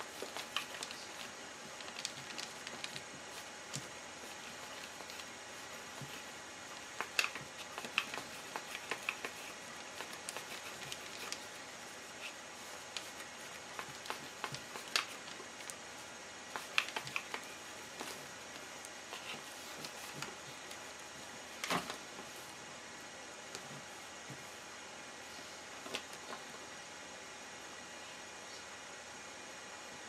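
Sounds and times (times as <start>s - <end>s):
faint steady hiss: 0.0s - 30.0s
dough rolling clicks and taps: 6.8s - 11.6s.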